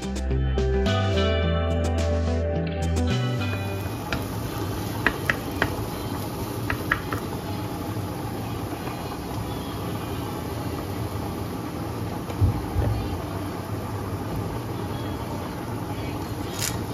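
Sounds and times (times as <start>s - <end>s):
mushrooms sizzling in frying pan: 3.3s - 16.9s
wooden spoon knocking on pan: 3.5s - 7.4s.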